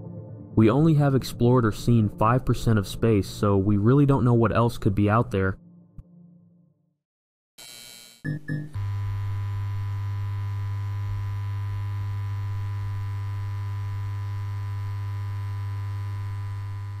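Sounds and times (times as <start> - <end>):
neon sign electrical hum: 8.3 - 17.0.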